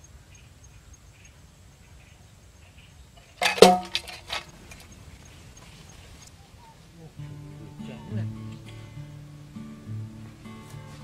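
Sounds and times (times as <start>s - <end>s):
light metallic clatters: 3.2s - 5.0s
metal trap clanging shut: 3.4s - 4.4s.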